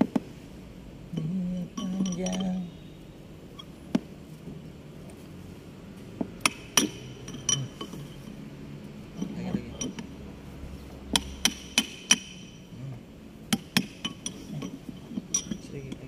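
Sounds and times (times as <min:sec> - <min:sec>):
metal tool tapping on metal: 0:06.4 - 0:08.2, 0:11.1 - 0:12.6, 0:13.5 - 0:16.0.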